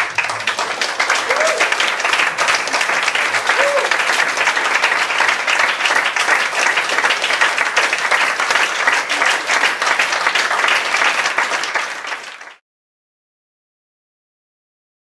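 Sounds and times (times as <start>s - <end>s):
audience applauding: 0.0s - 12.6s.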